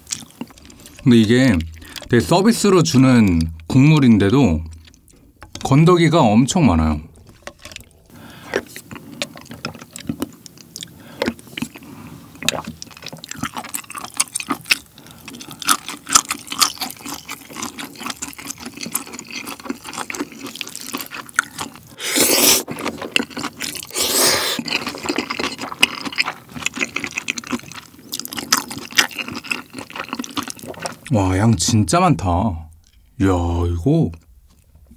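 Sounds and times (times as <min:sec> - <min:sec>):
wet chewing: 0:00.0 - 0:02.2, 0:04.6 - 0:05.6, 0:07.1 - 0:31.1
loud noodle slurps: 0:22.0 - 0:25.1.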